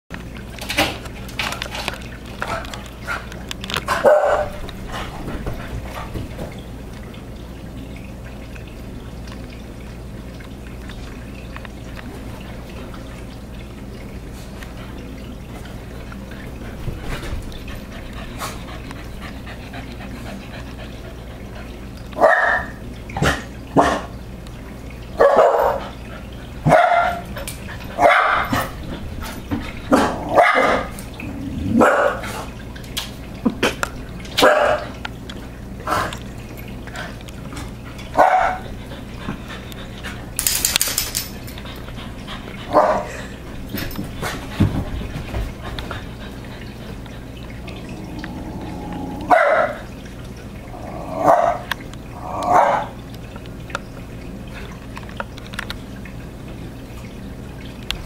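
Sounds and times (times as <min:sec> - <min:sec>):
small dog barking: 0:04.0 - 0:04.6, 0:22.2 - 0:22.7, 0:25.2 - 0:25.8, 0:26.7 - 0:27.2, 0:28.0 - 0:28.5, 0:30.3 - 0:30.9, 0:31.8 - 0:32.2, 0:34.4 - 0:34.9, 0:38.2 - 0:38.6, 0:49.3 - 0:49.8.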